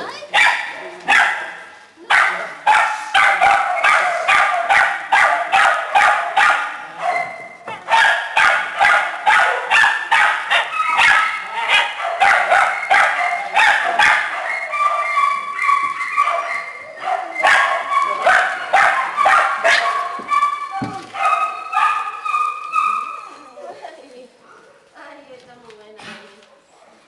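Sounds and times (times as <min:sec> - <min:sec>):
small dogs barking and yipping: 0:00.1 - 0:23.4
dog whining: 0:12.7 - 0:23.8.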